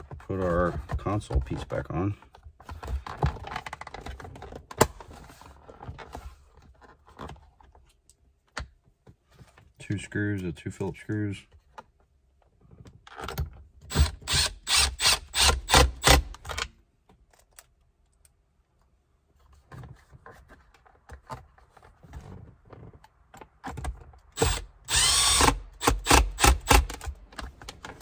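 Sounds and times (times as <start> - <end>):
screwdriver motor spinning: 13.9 - 16.2, 24.4 - 27.0.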